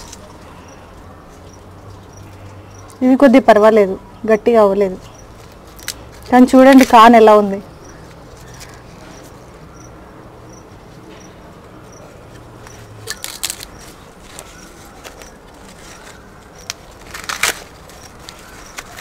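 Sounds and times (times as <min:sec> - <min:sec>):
corn husks crackling and tearing: 0:00.0 - 0:03.0, 0:05.4 - 0:07.2, 0:07.9 - 0:09.4, 0:12.2 - 0:19.0.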